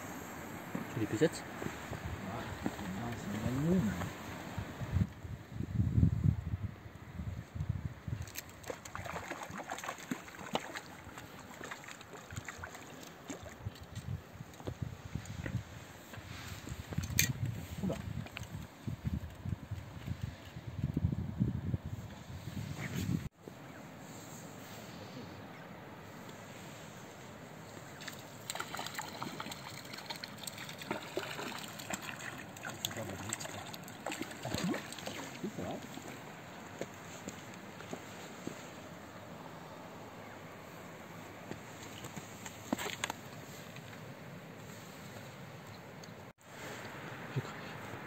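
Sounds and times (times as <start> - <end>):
faint hiss of water: 0.0 - 5.1
fish splashing at water surface: 8.4 - 13.6, 28.0 - 36.8.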